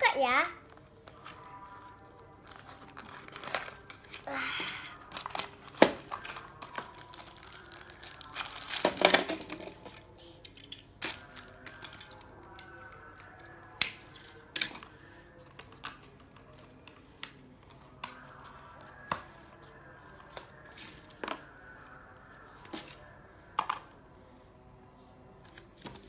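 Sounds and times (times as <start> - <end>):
packaging rustle: 2.1 - 9.5.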